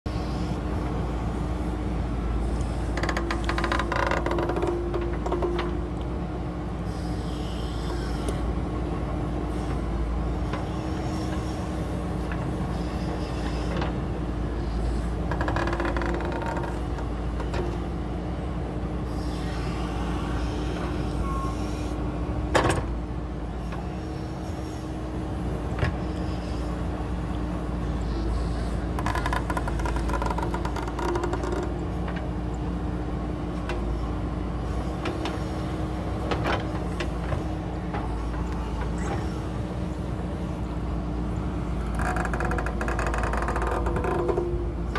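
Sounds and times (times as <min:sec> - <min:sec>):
diesel engine running: 0:00.1 - 0:44.9.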